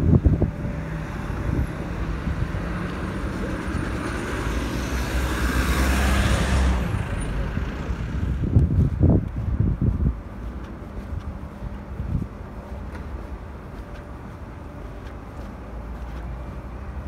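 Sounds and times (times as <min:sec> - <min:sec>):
vehicle passing close: 0:00.0 - 0:09.9
rumble of car engines: 0:00.0 - 0:17.0.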